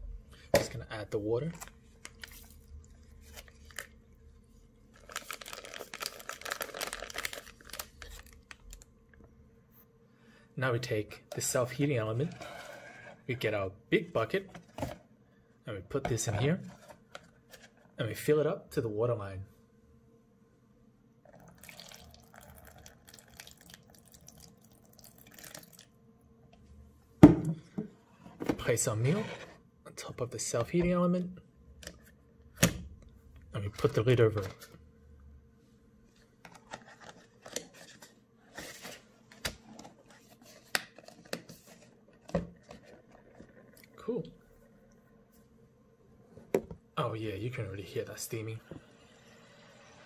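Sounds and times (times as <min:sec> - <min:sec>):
plastic pouch crinkling: 0:01.5 - 0:04.0, 0:04.9 - 0:08.9
water trickling into a bowl: 0:21.3 - 0:25.9.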